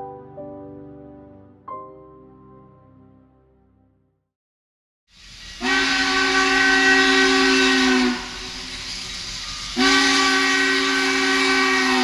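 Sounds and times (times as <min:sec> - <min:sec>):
steam hiss: 0:05.1 - 0:12.0
steam locomotive whistle blasts: 0:05.5 - 0:12.0.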